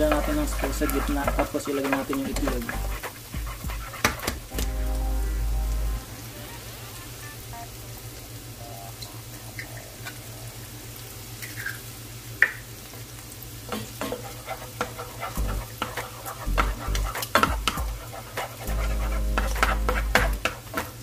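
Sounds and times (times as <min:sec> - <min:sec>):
spoon scraping a frying pan: 0:00.0 - 0:04.5, 0:13.7 - 0:21.0
food sizzling in oil: 0:00.0 - 0:21.0.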